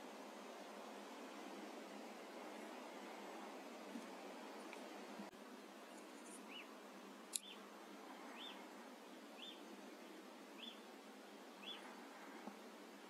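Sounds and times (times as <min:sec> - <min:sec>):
steady hiss: 0:00.0 - 0:13.0
faint high animal chirp: 0:11.6 - 0:11.9.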